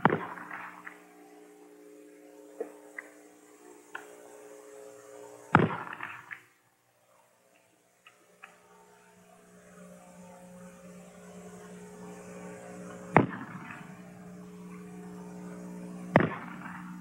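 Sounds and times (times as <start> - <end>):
rifle shots: 0.0 - 0.7, 5.5 - 6.4, 13.1 - 13.8, 16.1 - 16.8
steady low hum: 0.0 - 17.0.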